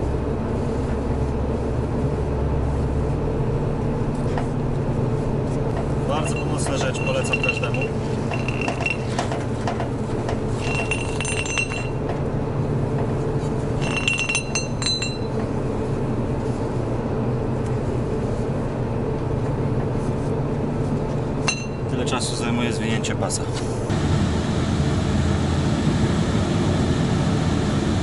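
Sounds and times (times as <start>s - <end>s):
low engine hum: 0.0s - 28.0s
metal hooks clinking: 6.1s - 9.2s.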